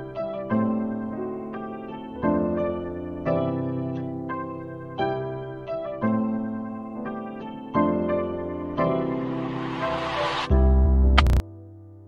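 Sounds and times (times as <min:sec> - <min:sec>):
sustained keyboard chords: 0:00.0 - 0:09.5
noisy whoosh: 0:09.0 - 0:10.6.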